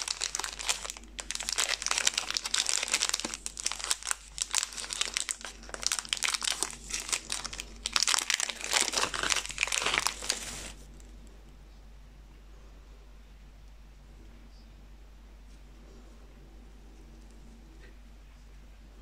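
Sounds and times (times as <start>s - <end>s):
wrapper crinkling and crackling: 0.0s - 11.2s.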